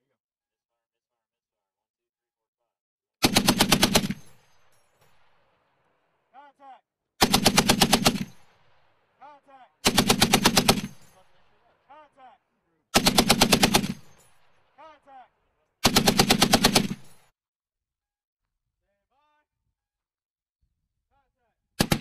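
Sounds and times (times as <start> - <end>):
heavy machine gun bursts: 3.2 - 4.4, 7.2 - 8.5, 9.8 - 11.2, 13.0 - 14.2, 15.8 - 17.2.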